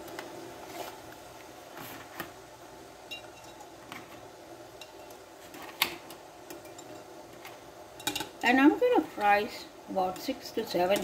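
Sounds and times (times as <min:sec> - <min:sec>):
eggs tapping on metal: 0:08.0 - 0:08.6, 0:10.1 - 0:11.0.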